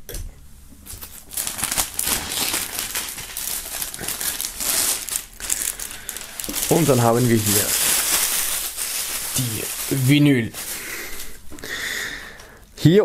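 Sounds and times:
plastic film crinkling: 0.8s - 12.6s.

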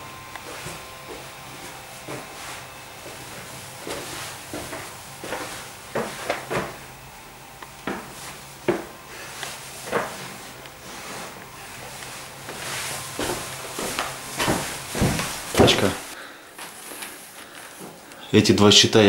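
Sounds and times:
footsteps: 0.0s - 18.0s
light knocks and scuffs: 12.5s - 16.0s.

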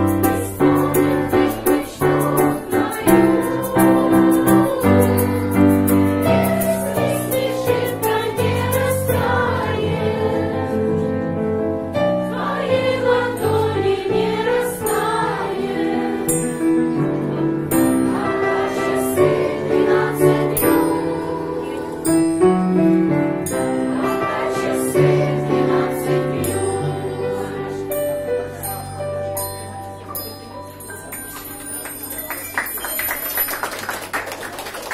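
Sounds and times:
shaker rattling: 0.0s - 9.0s
voices singing together: 0.0s - 11.2s, 12.1s - 17.0s, 17.7s - 22.4s, 23.6s - 28.0s
piano: 0.0s - 34.9s.

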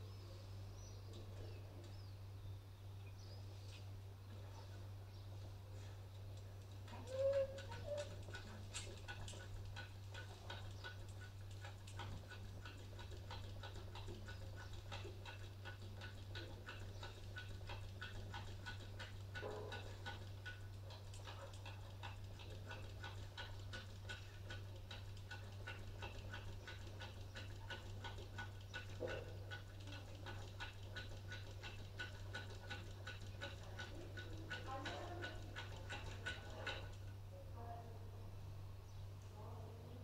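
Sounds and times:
dog rhythmic ticking: 6.6s - 37.2s
dog whine: 7.0s - 8.2s.

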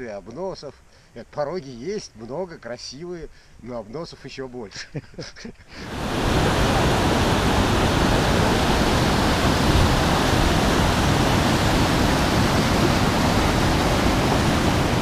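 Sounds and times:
whitewater rapids rushing over boulders: 5.8s - 15.0s.

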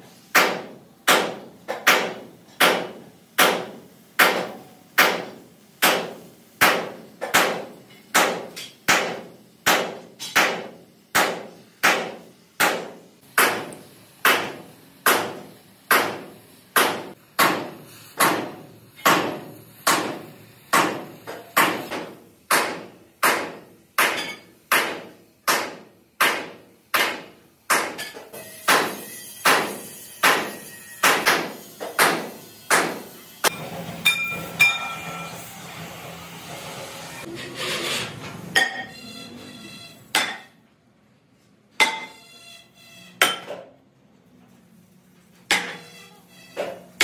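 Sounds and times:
hammer striking steel plate: 0.3s - 35.4s, 40.1s - 40.6s, 41.8s - 42.2s, 43.2s - 43.6s, 45.5s - 45.9s
steady hiss: 2.2s - 33.5s.

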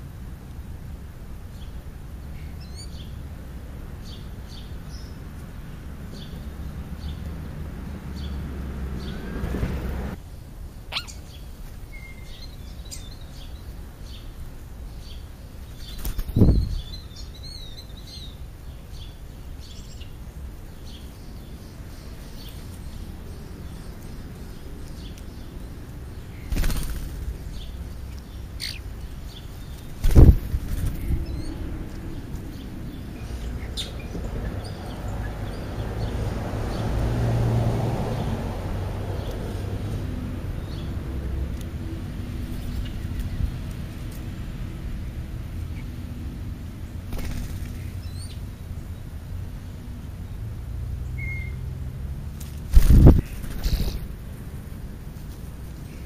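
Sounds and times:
faint high bird chirps: 10.9s - 13.6s
bird wings flapping: 15.8s - 16.6s, 26.5s - 27.6s, 29.7s - 31.3s, 47.1s - 48.0s, 52.4s - 54.1s.

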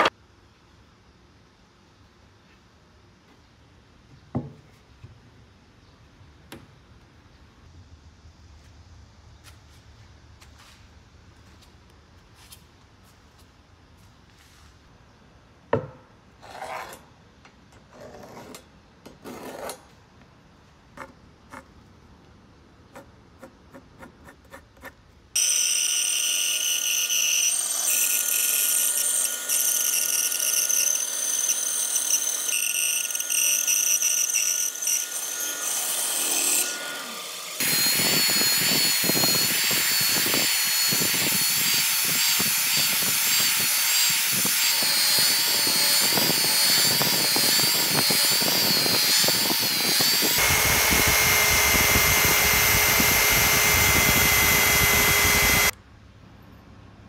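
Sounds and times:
band saw whining: 25.4s - 55.7s
power sander grinding: 27.5s - 55.7s.

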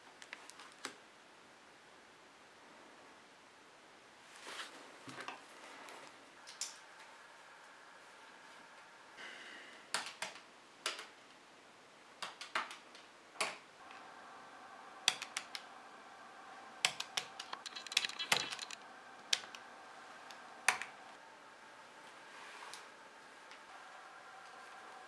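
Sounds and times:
calculator keys clicking: 16.9s - 18.8s.

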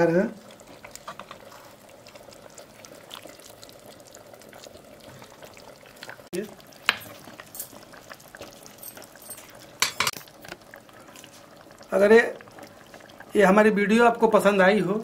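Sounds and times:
spoon scraping and clinking on pot: 7.1s - 8.0s, 8.6s - 10.2s.

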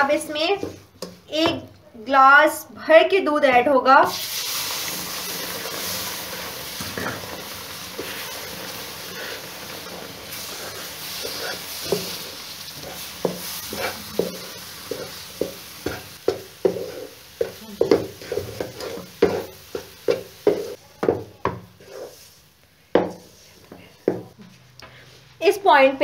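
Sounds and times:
light sizzle: 4.0s - 23.6s
spatula scraping a wok: 5.2s - 20.8s, 21.4s - 23.6s.

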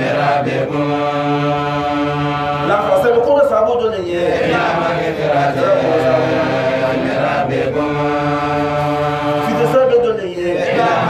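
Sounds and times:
man chanting: 2.0s - 7.1s, 8.8s - 11.0s.

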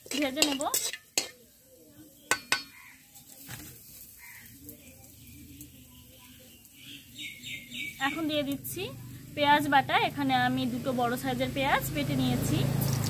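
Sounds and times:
metal spatula clinking on pan: 0.0s - 1.5s, 2.3s - 3.3s
faint sizzling spices: 0.0s - 13.0s.

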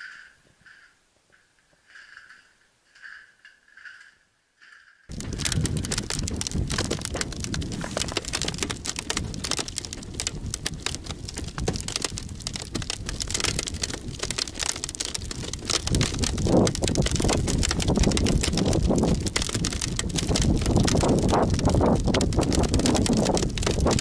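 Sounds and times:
lake ice crackling: 5.1s - 24.0s
wind gusts on microphone: 5.1s - 24.0s.

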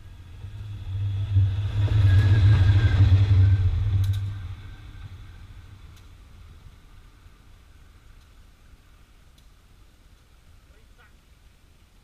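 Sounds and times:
diesel locomotive engine drone: 0.0s - 9.4s.

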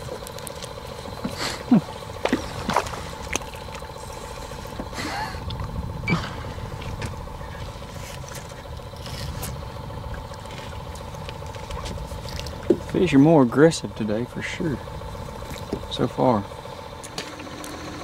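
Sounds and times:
knocks and scrapes in boat: 0.0s - 5.1s, 6.1s - 13.3s
electric motor humming: 0.0s - 18.0s.

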